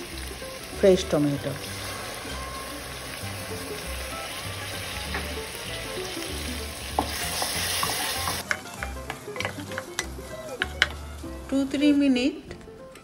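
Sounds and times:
food sizzling in oil: 0.0 - 11.9
wooden spoon knocking against pot: 6.9 - 11.0.

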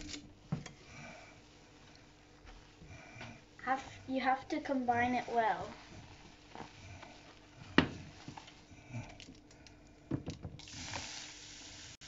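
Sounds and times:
whisk scraping glass bowl: 5.0 - 8.8
sparkling water pouring and fizzing: 10.6 - 12.0.

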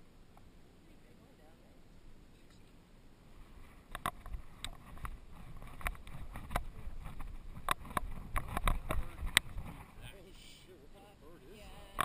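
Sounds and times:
camera harness clicks and knocks: 3.9 - 9.5.

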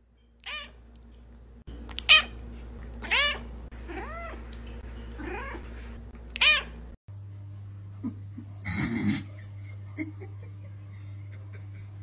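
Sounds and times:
cat meowing: 3.0 - 4.4, 5.2 - 5.6, 6.4 - 6.8.

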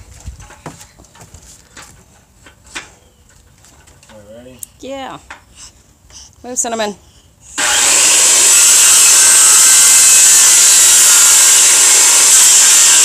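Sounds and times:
circular saw cutting wood: 7.6 - 13.0.

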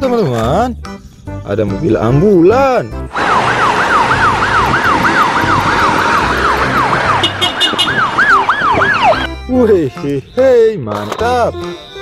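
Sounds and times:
street traffic noise: 2.6 - 12.0
ambulance siren wailing: 3.1 - 9.3
higher siren tone: 3.2 - 9.3.

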